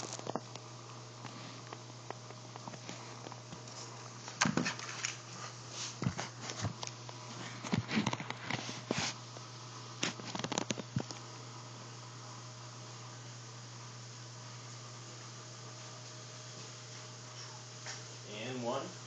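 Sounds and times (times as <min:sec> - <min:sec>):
pops and crackles of frying: 0:00.0 - 0:05.2, 0:06.0 - 0:11.4.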